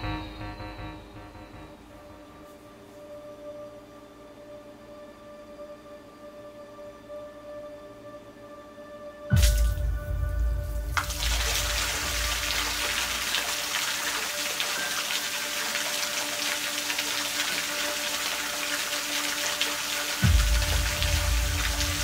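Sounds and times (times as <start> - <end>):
sustained music tones: 0.0 - 22.0
fountain water rushing: 10.8 - 22.0.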